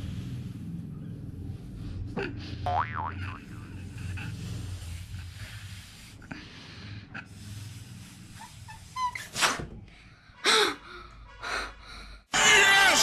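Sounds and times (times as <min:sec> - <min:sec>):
person blowing into balloon: 0:07.2 - 0:09.7
balloon rubber squeak: 0:08.2 - 0:09.8.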